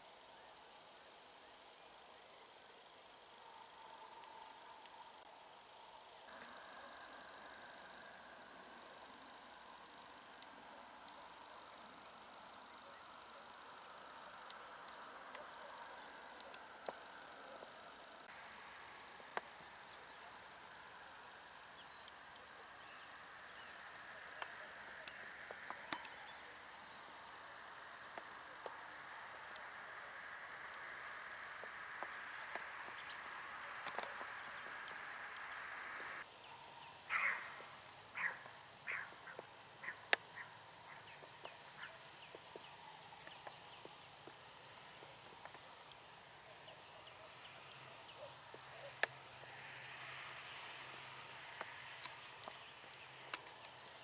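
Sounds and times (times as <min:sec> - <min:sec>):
low steady hum: 0:00.0 - 0:36.6
open field background noise: 0:00.0 - 0:54.0
faint chirps: 0:00.2 - 0:54.0.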